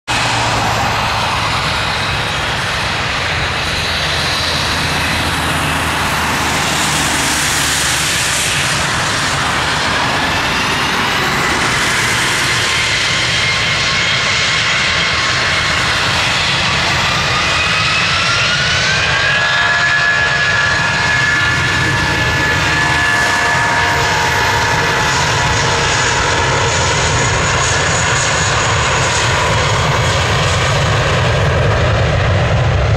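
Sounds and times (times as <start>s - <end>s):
jet engines at takeoff power: 0.0s - 32.9s.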